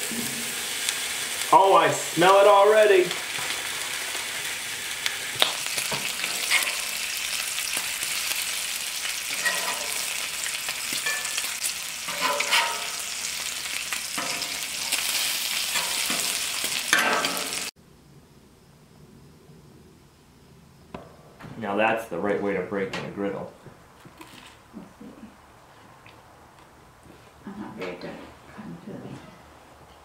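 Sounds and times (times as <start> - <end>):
bacon sizzling on griddle: 0.0 - 17.8.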